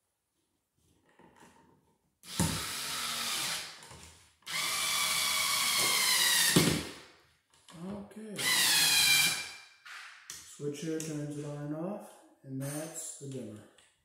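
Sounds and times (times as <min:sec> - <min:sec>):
power drill driving screws: 0:02.2 - 0:03.8, 0:04.5 - 0:06.9, 0:08.4 - 0:10.0.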